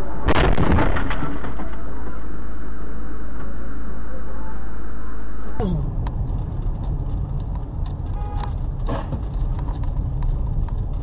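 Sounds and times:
car road and engine rumble: 5.6 - 11.0.

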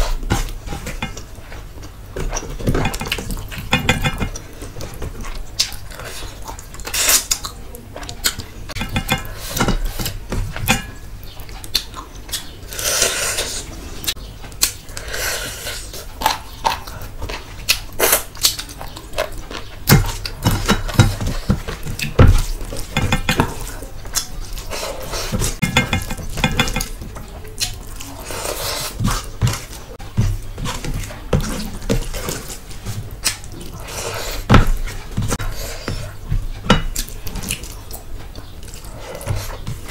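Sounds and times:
wet chewing: 0.0 - 39.9.

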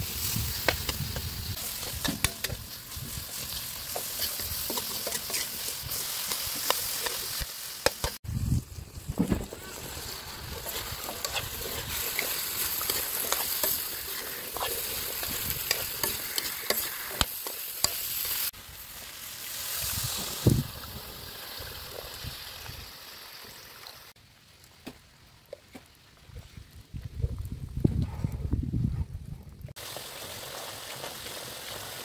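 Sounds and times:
food sizzling in oil: 0.0 - 24.2, 29.8 - 32.0
metal spatula scraping wok: 1.5 - 8.2, 9.6 - 18.5.

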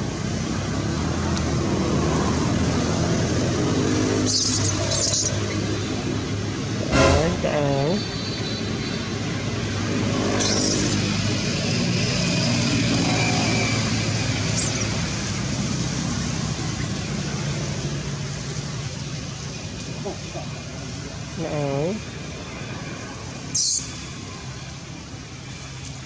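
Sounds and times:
brief high-pitched sounds: 6.9 - 8.1.

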